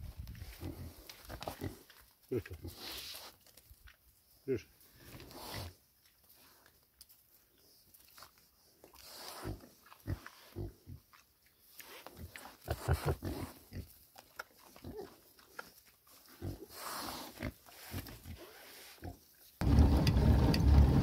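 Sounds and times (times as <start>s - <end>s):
pigs grunting: 9.0s - 11.1s, 12.2s - 14.0s.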